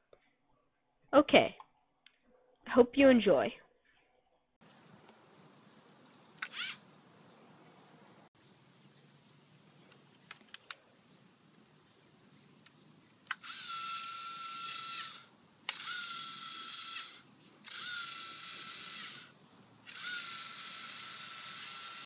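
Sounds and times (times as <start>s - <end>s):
toy motors whirring: 6.3s - 6.8s, 13.3s - 22.0s.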